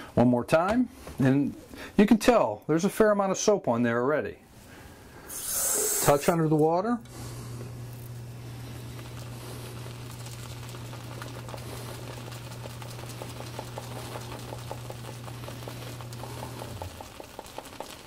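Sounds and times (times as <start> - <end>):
steady low hum: 4.5 - 17.0.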